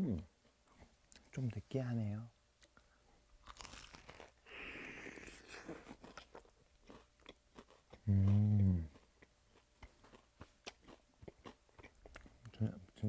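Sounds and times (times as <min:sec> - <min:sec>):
crunch of fried chicken bite: 0:03.4 - 0:04.4, 0:05.2 - 0:09.1
chewing with wet clicks: 0:06.0 - 0:12.6
person humming low: 0:08.0 - 0:08.9.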